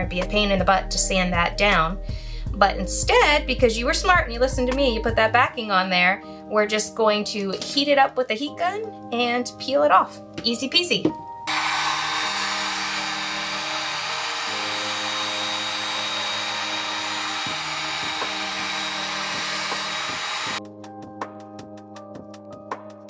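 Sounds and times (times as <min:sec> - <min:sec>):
background music: 0:00.0 - 0:23.0
heat gun blowing air: 0:11.5 - 0:20.6.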